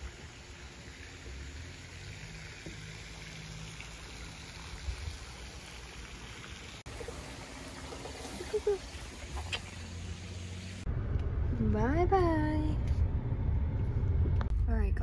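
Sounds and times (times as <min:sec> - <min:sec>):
fountain spraying water: 0:00.0 - 0:10.8
low rumble: 0:09.9 - 0:15.0.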